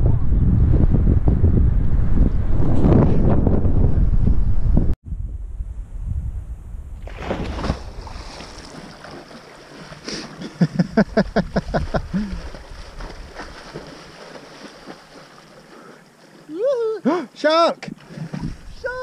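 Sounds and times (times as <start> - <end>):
wind buffeting microphone: 0.0 - 8.8, 10.8 - 14.0, 18.0 - 19.0.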